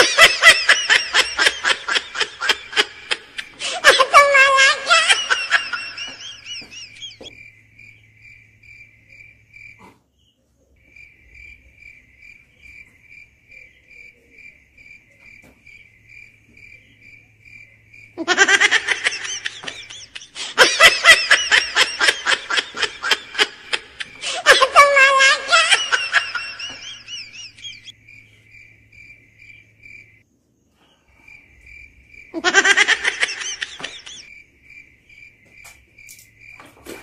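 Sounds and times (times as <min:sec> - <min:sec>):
people laughing: 0:00.0 - 0:07.3, 0:18.2 - 0:27.9, 0:32.4 - 0:34.3
cricket chirping: 0:00.0 - 0:37.0.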